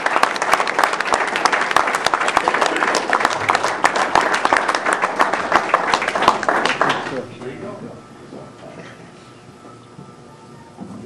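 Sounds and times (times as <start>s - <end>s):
crowd applauding: 0.0s - 7.8s.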